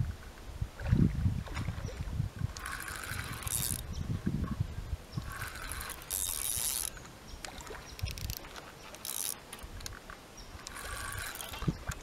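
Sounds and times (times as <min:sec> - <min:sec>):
fishing reel winding: 0:02.5 - 0:03.9, 0:05.2 - 0:09.9, 0:10.6 - 0:12.0.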